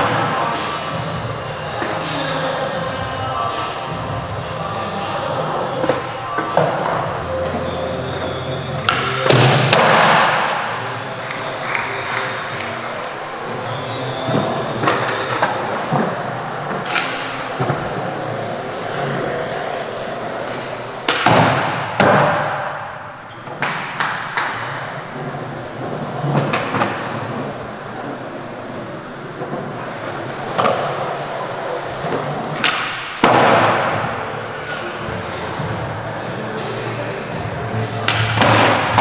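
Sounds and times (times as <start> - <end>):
skateboard wheels rolling on concrete: 0.0 - 22.5, 23.2 - 39.0.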